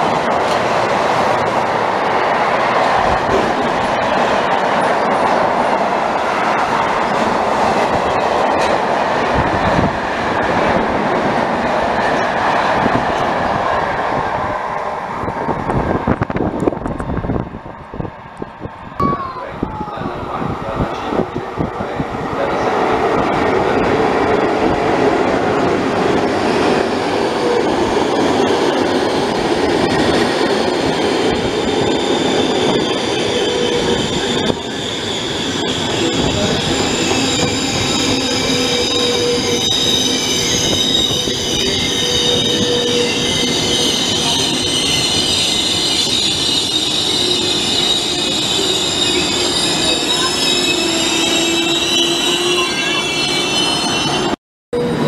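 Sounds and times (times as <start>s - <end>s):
train coaches rumbling: 0.0s - 55.0s
train brakes squealing: 30.4s - 55.0s.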